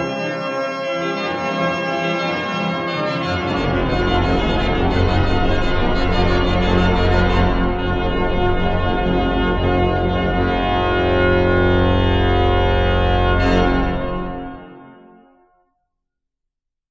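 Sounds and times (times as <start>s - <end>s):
pipe organ chord: 0.0s - 15.4s.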